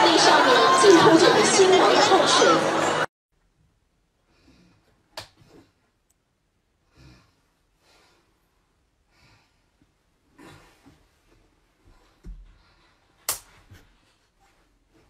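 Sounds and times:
soft breathing: 6.8s - 13.2s.

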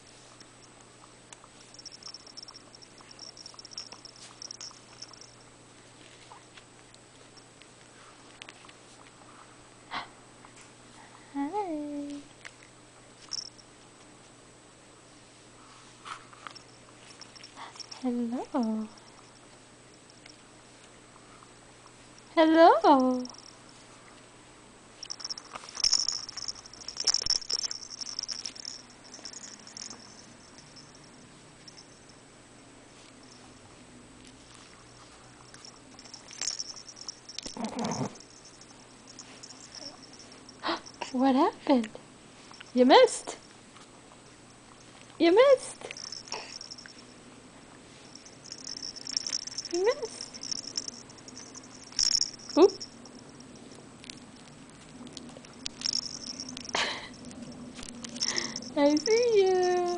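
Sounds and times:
breathy sound: 46.3s - 46.8s, 58.2s - 58.8s.

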